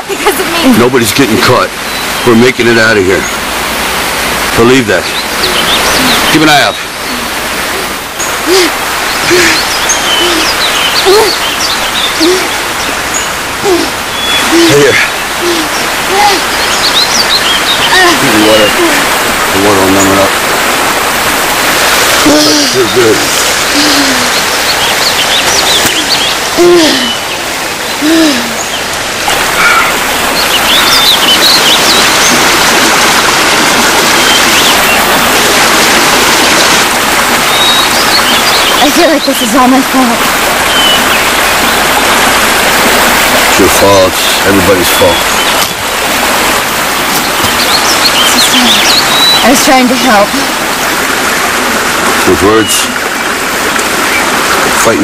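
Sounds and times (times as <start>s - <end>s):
steady rushing hiss: 0.1s - 55.0s
high bird chirps: 8.2s - 18.8s, 24.2s - 33.1s, 37.4s - 40.0s, 40.6s - 42.0s, 47.0s - 50.9s
low arching bird hoot: 29.5s - 30.1s.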